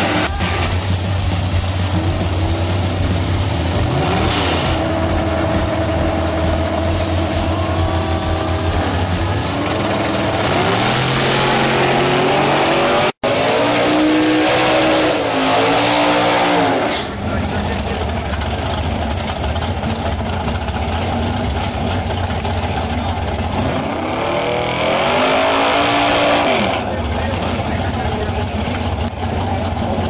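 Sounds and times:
race car engines revving: 0:00.0 - 0:30.0.

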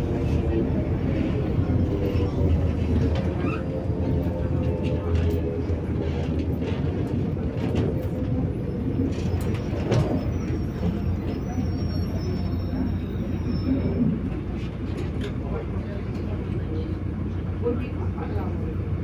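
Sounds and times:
bus engine and road drone: 0:00.0 - 0:19.0
bus body clicks and rattles: 0:02.2 - 0:11.0, 0:14.4 - 0:16.6.

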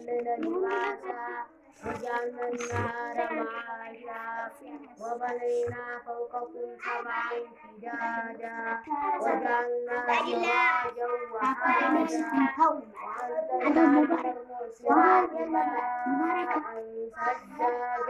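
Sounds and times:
child chanting melodically: 0:00.0 - 0:18.0.

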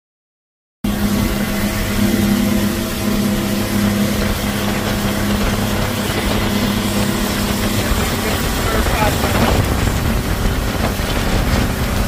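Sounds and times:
outboard motor running: 0:00.8 - 0:12.0
rushing wind: 0:00.9 - 0:12.0
water spray from boat wake: 0:00.9 - 0:12.0.

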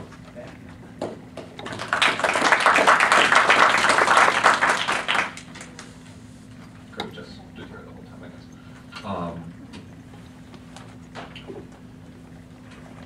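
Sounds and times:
small audience applauding: 0:01.6 - 0:05.9.

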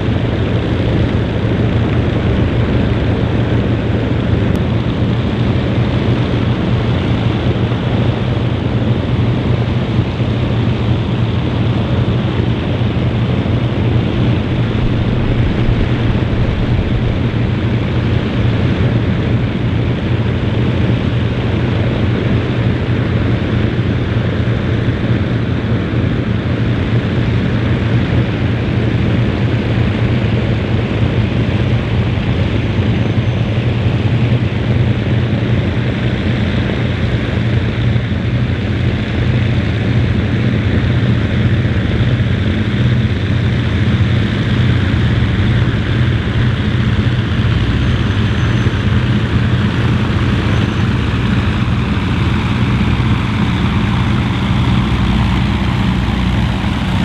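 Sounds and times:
aircraft engines droning: 0:00.0 - 0:57.0.

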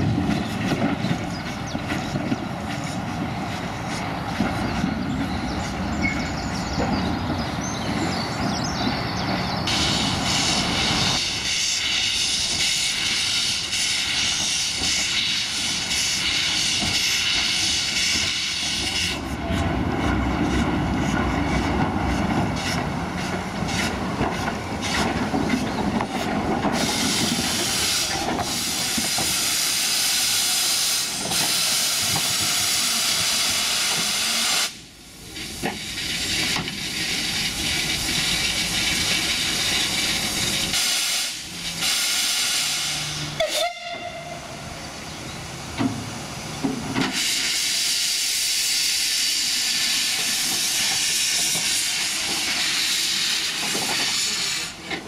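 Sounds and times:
escaping steam hiss: 0:02.5 - 0:55.0
steam blowing from drain cocks: 0:38.2 - 0:44.0, 0:47.0 - 0:54.7.

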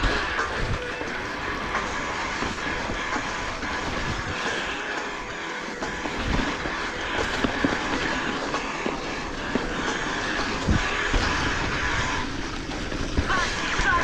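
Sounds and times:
bike rattling over bumps: 0:00.0 - 0:14.0
tyre and wind noise: 0:05.8 - 0:14.0.

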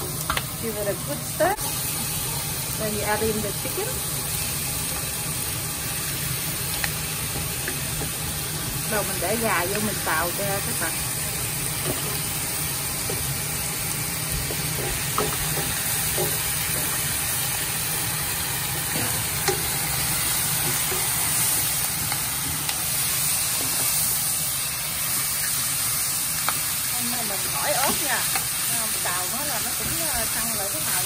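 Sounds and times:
chicken sizzling in a wok: 0:00.0 - 0:31.0
utensils knocking against pan: 0:14.4 - 0:17.1.

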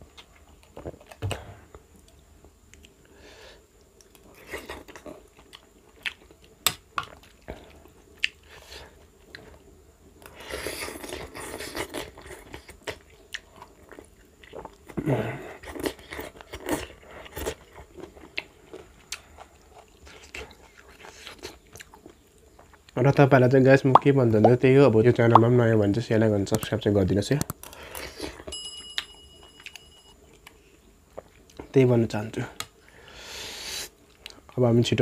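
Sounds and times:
person chewing food: 0:00.0 - 0:03.1, 0:03.8 - 0:23.0.

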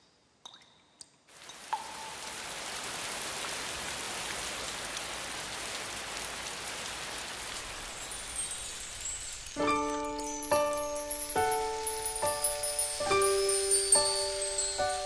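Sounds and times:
rain hissing: 0:01.3 - 0:15.0
music with bell-like notes: 0:07.9 - 0:15.0.

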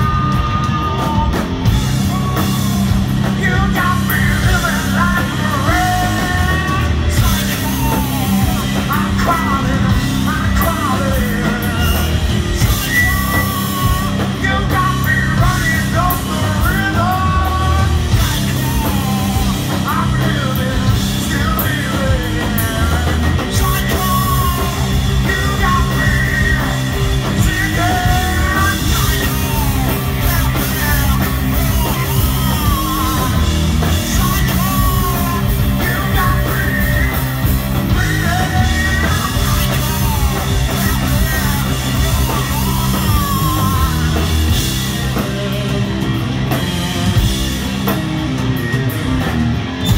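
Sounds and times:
live rock band playing: 0:00.0 - 0:49.9
person yelling vocals: 0:37.9 - 0:44.3.

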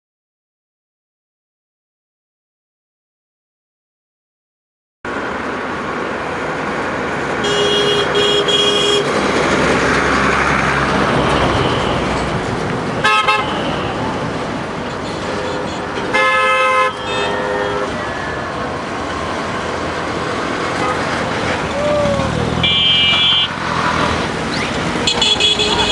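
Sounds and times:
city traffic noise: 0:05.0 - 0:25.9
train horn blasts: 0:15.2 - 0:18.0.

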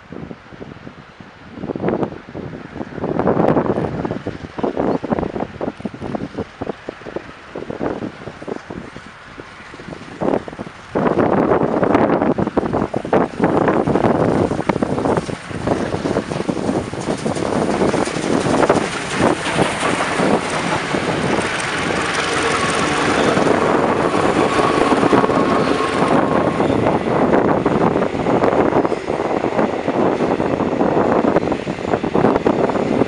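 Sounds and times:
locomotives passing: 0:02.1 - 0:33.0
train wheels clattering over rail joints: 0:12.8 - 0:33.0.

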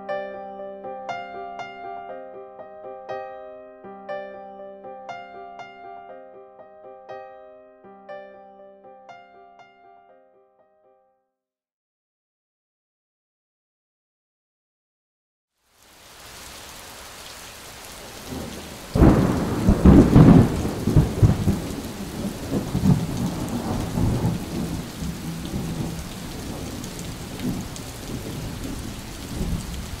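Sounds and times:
rain hiss: 0:15.6 - 0:30.0
rolling thunder rumble: 0:18.3 - 0:30.0
thunderclap: 0:18.3 - 0:30.0.

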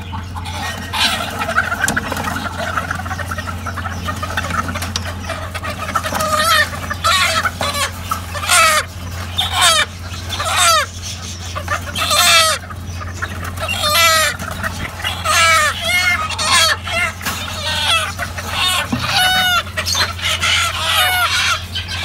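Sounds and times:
chickens clucking: 0:00.0 - 0:22.0
steady low hum: 0:00.0 - 0:22.0.

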